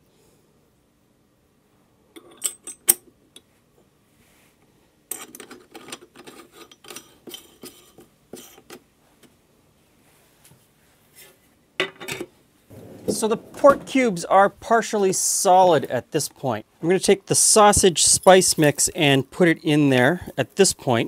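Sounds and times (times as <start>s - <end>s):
metal clattering and scraping: 12.7s - 14.6s.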